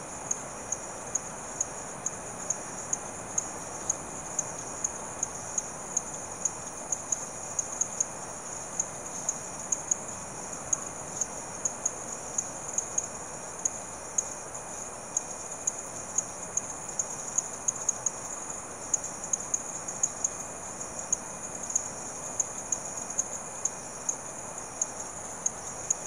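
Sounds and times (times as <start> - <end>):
insect drone: 0.0 - 26.0.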